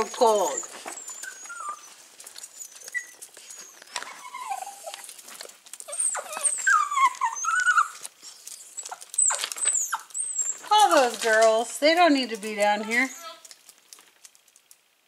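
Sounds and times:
dog whining: 0.0s - 5.2s, 5.8s - 11.0s, 12.7s - 13.5s.

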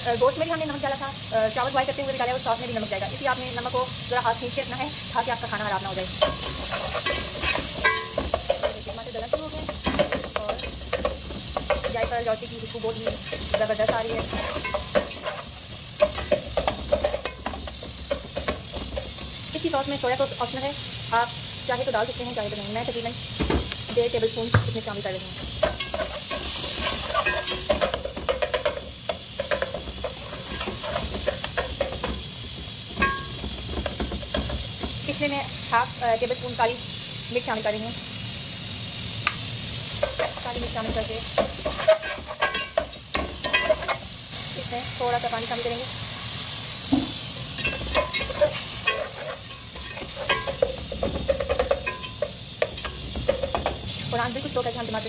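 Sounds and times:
tomatoes sizzling in oil: 0.0s - 55.0s
metal spatula scraping pot: 6.2s - 19.4s, 25.4s - 34.9s, 40.0s - 44.0s, 47.6s - 53.7s
spatula striking pot with ring: 7.8s - 8.3s, 33.0s - 33.4s, 51.4s - 53.6s.

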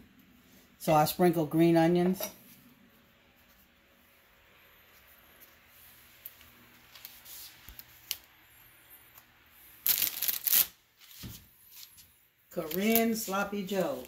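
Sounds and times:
faint handling sounds: 2.2s - 8.4s, 11.0s - 14.0s.

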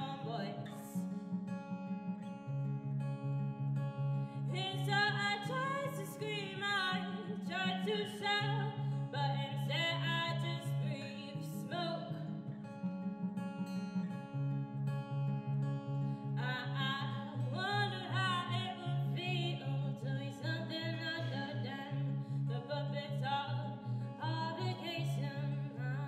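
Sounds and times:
woman singing: 0.0s - 1.2s, 4.4s - 12.5s, 16.2s - 26.0s
acoustic guitar: 0.0s - 26.0s.

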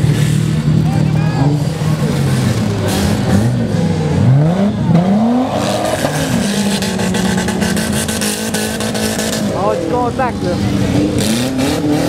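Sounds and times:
race car engines revving: 0.0s - 12.0s.

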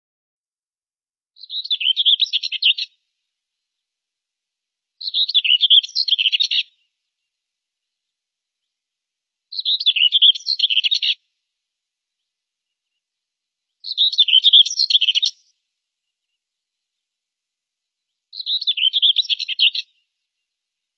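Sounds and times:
bird warbling song: 1.4s - 3.0s, 5.0s - 6.9s, 9.5s - 11.3s, 13.7s - 17.0s, 18.0s - 20.5s.

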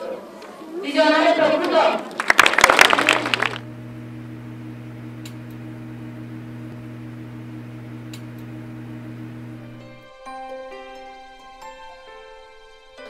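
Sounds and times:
low electrical hum: 3.0s - 10.0s
faint clicks: 3.4s - 10.0s.

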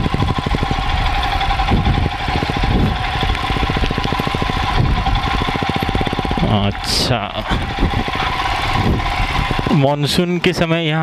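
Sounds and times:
motorcycle engine pulsing exhaust: 0.0s - 11.0s.

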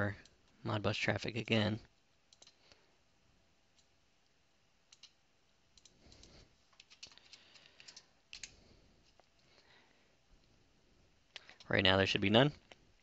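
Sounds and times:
computer keyboard clicks: 2.3s - 2.6s, 4.9s - 5.2s, 5.8s - 8.6s.

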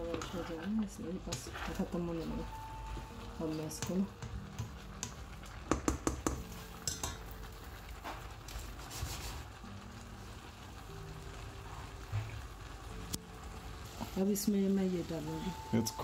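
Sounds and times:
spatula scraping steel pot: 0.0s - 2.0s
rice sizzling softly: 0.0s - 16.0s.

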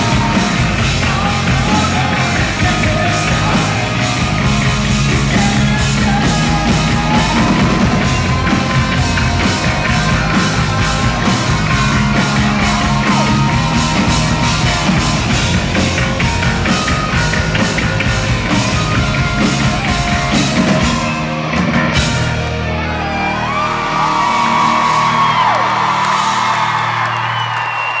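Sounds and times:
lead singer singing: 0.0s - 15.5s
drums keeping a steady beat: 0.0s - 22.6s
crowd shouting and whistling: 0.0s - 28.0s
live rock band: 0.0s - 28.0s.

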